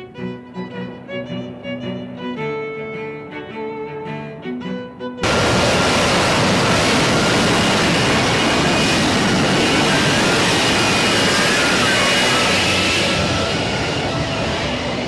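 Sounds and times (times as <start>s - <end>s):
string music: 0.0s - 15.0s
loud jet engine noise: 5.2s - 15.0s.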